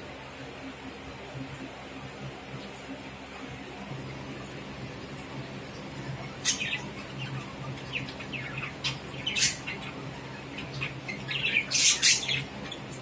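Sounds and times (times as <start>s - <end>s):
budgerigars chirping: 6.4s - 12.9s.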